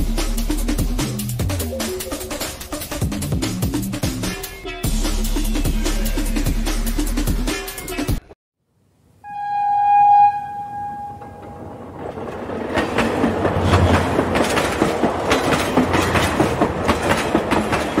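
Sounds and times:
train horn: 9.2 - 11.8
train wheels clattering over rails: 11.3 - 18.0.

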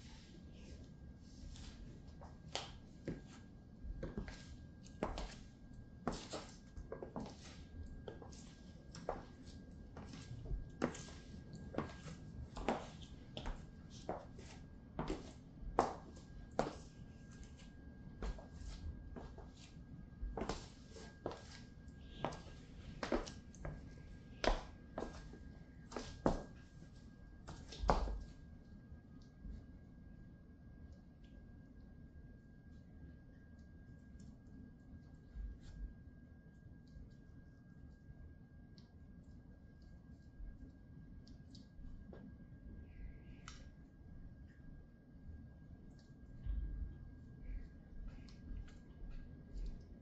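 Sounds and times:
heels clicking on hard floor: 4.0 - 5.5, 10.0 - 17.6, 20.3 - 21.6, 22.2 - 26.6, 27.5 - 28.3.

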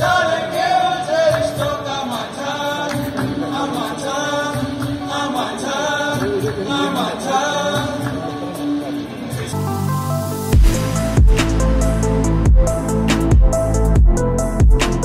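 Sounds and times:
mixed choir singing: 0.0 - 8.4.

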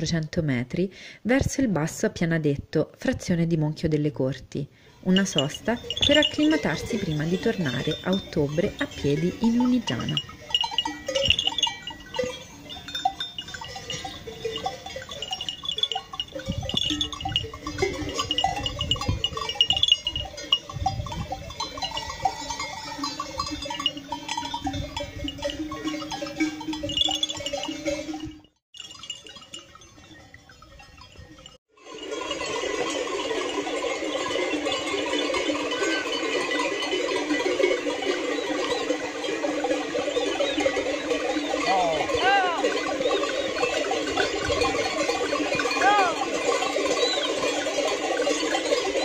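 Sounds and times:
neck bells clanking: 4.9 - 49.0
sheep and goats bleating: 21.6 - 27.2, 32.8 - 49.0.

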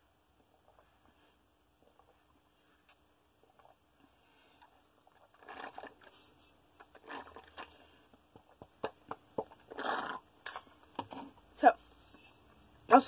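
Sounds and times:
slurping through a straw: 3.5 - 8.1, 9.4 - 10.6.

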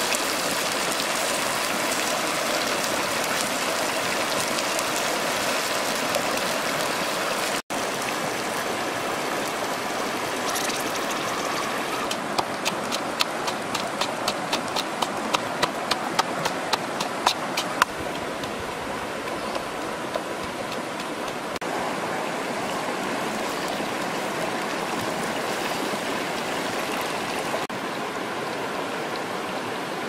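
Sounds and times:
steady rushing hiss: 10.5 - 21.6.

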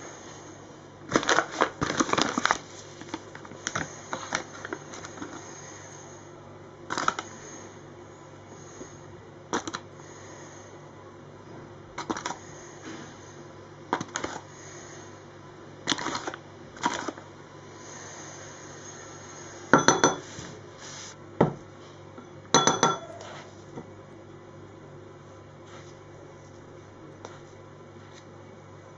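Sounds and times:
spoon clinking against bowl: 19.8 - 20.2, 22.6 - 23.2.

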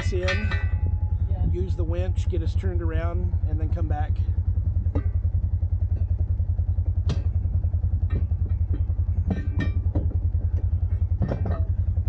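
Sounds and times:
off-road vehicle engine running: 0.0 - 12.0
vehicle knocks and rattles: 4.6 - 12.0.

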